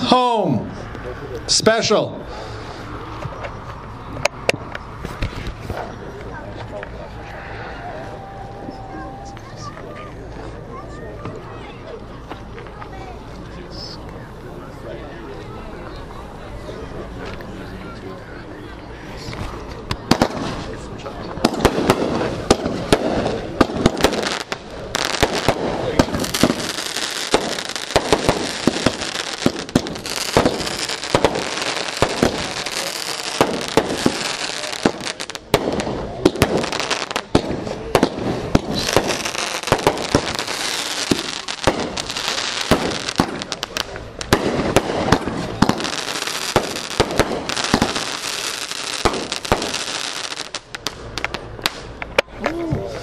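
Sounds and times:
firework reports: 0.0s - 53.0s
firework crackle: 19.9s - 52.2s.

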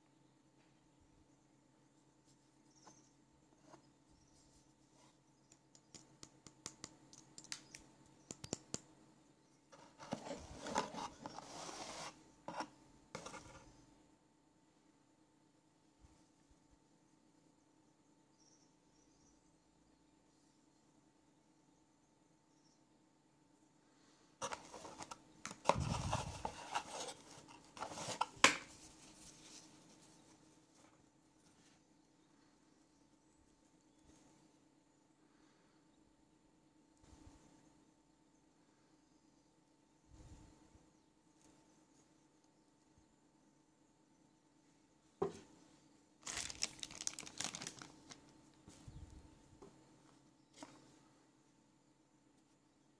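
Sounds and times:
fingers tapping on torch: 5.5s - 8.9s
rubbing and scraping in cardboard box: 9.8s - 13.7s, 24.4s - 30.4s
cardboard and foam rustling: 24.4s - 31.6s, 46.2s - 47.9s.

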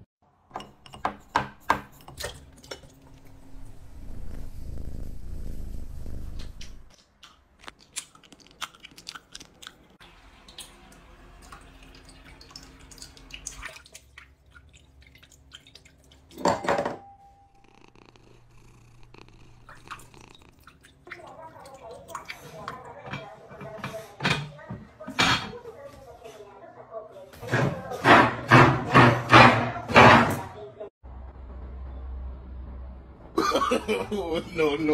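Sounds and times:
cat purring: 3.4s - 6.9s, 17.3s - 20.8s.

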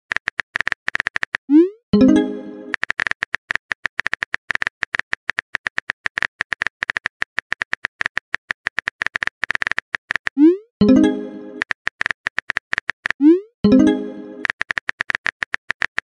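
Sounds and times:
phone keyboard typing clicks: 0.1s - 16.0s.

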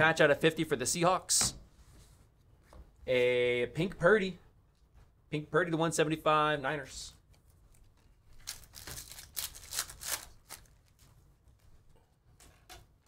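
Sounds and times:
cards rustling and flicking: 7.4s - 11.2s.

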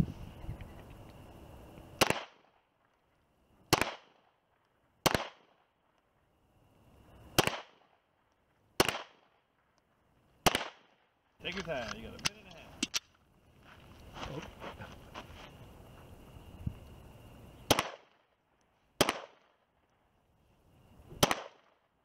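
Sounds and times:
pistol shots: 2.0s - 2.5s, 3.7s - 4.2s, 5.0s - 5.5s, 7.4s - 7.9s, 8.8s - 9.4s, 10.4s - 11.0s, 17.7s - 18.2s, 19.0s - 19.5s, 21.2s - 21.8s.

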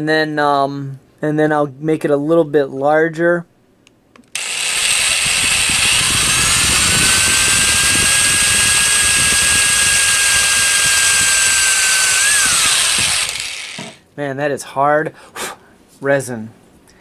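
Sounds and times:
cordless drill boring into resin: 4.4s - 14.0s.

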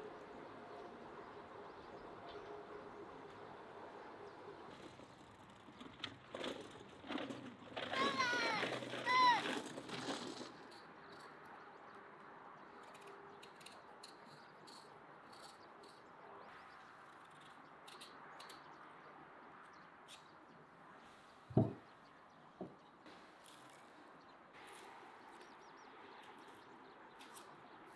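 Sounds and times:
dull thud: 21.5s - 21.8s.

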